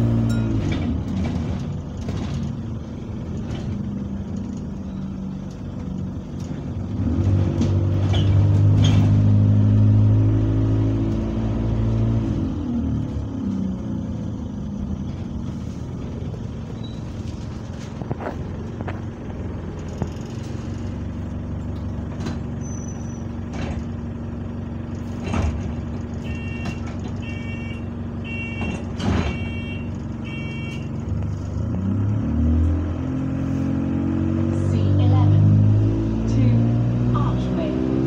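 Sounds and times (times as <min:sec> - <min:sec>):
bus engine idling: 0:00.0 - 0:10.8, 0:11.6 - 0:31.7
sharp knocks and rattles: 0:00.3 - 0:04.8, 0:23.2 - 0:27.2
door warning beeps: 0:26.3 - 0:30.9.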